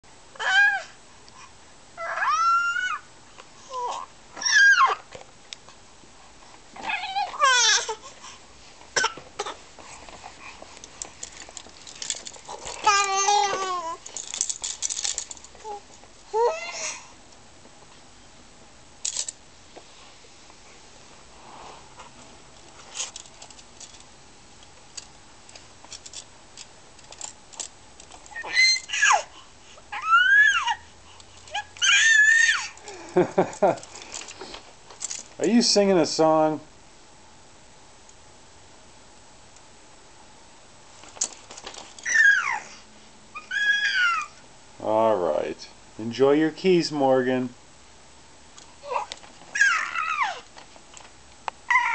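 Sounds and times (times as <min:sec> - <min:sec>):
baby squealing and cooing: 0:00.4 - 0:01.0, 0:02.0 - 0:03.1, 0:03.7 - 0:05.1, 0:06.8 - 0:08.1, 0:12.5 - 0:14.0, 0:15.6 - 0:17.0, 0:28.3 - 0:29.3, 0:29.9 - 0:30.9, 0:31.5 - 0:32.8, 0:42.0 - 0:42.8, 0:43.4 - 0:44.4, 0:48.8 - 0:50.4, 0:51.7 - 0:51.9
plastic toy keys rattling: 0:10.8 - 0:15.7, 0:19.0 - 0:19.4, 0:22.9 - 0:24.1, 0:24.9 - 0:29.0, 0:32.7 - 0:35.4.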